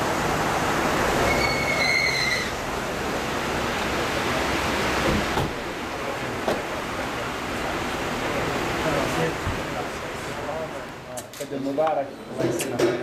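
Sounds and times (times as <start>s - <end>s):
street traffic noise: 0.0s - 13.0s
short high squeal: 1.2s - 2.6s.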